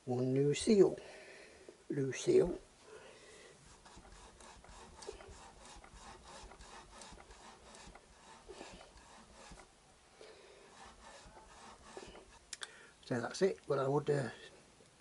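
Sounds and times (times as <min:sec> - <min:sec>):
hands rubbing and scraping metal: 0:03.6 - 0:09.7, 0:10.6 - 0:12.5.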